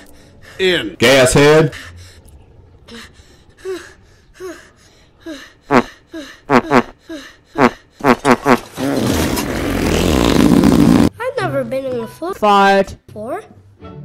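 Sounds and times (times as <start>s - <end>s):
long raspy fart: 6.5s - 6.9s, 7.6s - 11.1s
squeaky fart sounds: 6.5s - 6.9s, 7.6s - 11.1s.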